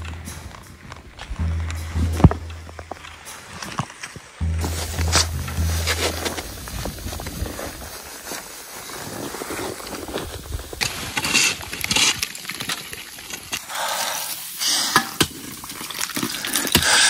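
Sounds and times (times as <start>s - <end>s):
crunching scrapes on snow: 3.2s - 12.2s.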